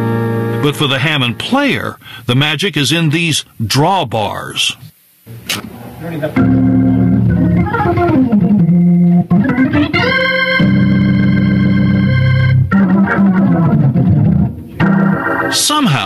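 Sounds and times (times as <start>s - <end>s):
tonewheel organ playing chords: 0.0s - 1.6s, 6.4s - 16.0s.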